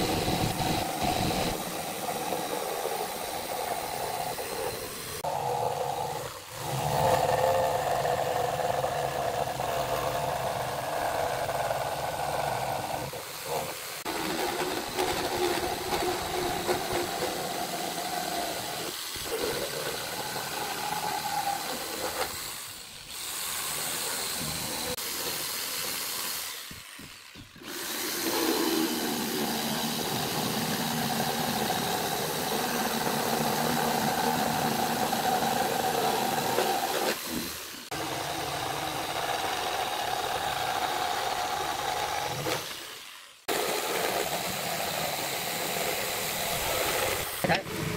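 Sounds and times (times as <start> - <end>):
jigsaw cutting wood: 0.0 - 47.9.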